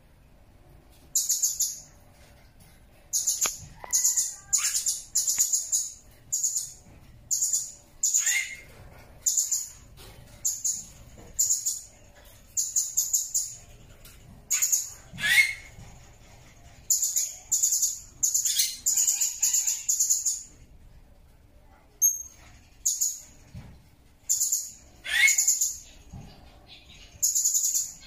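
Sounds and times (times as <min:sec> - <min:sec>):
parrot chirping: 0:01.1 - 0:01.9, 0:03.1 - 0:09.8, 0:14.5 - 0:20.5, 0:24.2 - 0:28.0.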